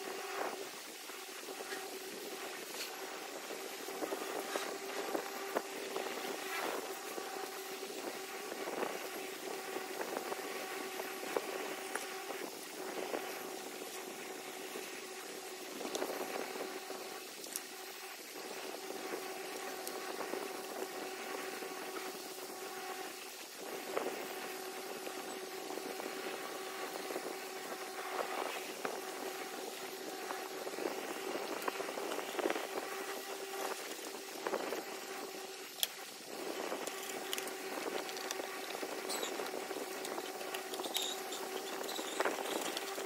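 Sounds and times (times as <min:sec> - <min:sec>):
steady electrical hum: 0:00.0 - 0:43.0
cardboard rustling and scraping: 0:28.2 - 0:43.0.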